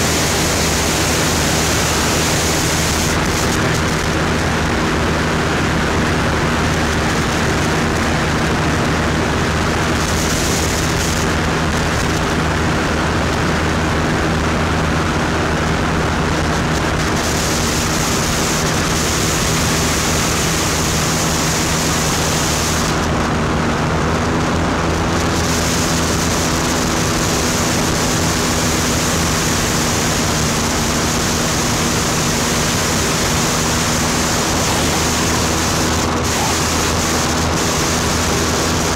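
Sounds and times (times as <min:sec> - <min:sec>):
airplane engine drone: 0:00.0 - 0:38.9
air rushing: 0:25.2 - 0:38.9.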